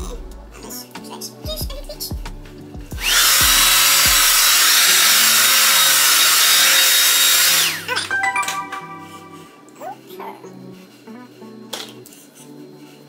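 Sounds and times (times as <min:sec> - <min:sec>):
hair dryer blowing: 0:03.0 - 0:08.0.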